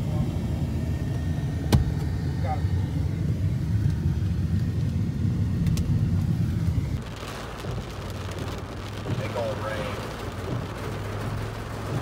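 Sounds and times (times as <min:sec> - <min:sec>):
road and wind noise in vehicle: 0:00.0 - 0:12.0
heavy rain on vehicle: 0:04.0 - 0:12.0.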